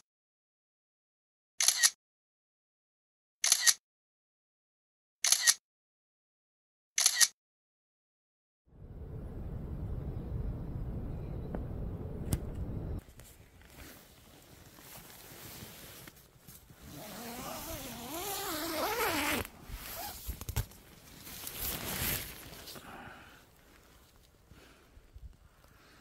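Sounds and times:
wind gusting against tent: 8.9s - 13.0s
rustles and scrapes: 13.0s - 22.8s.

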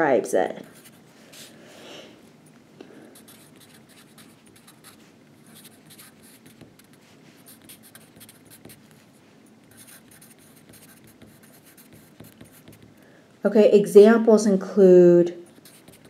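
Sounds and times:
pen scratching handwriting: 0.6s - 1.0s, 3.2s - 9.0s, 9.7s - 13.0s, 15.4s - 16.0s.

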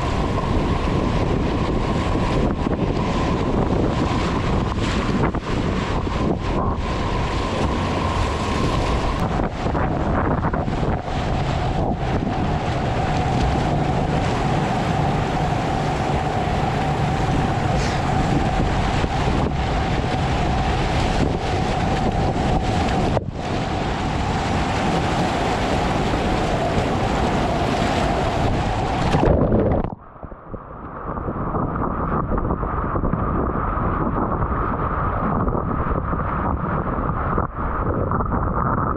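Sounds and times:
whitewater rapids rushing: 0.0s - 29.7s
waves breaking over boat: 0.0s - 38.9s
wind buffeting microphone: 0.0s - 38.9s.

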